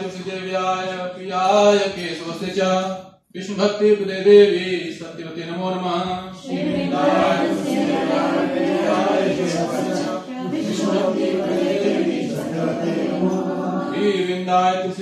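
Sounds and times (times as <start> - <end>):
voices singing a devotional chant: 6.2 - 15.0.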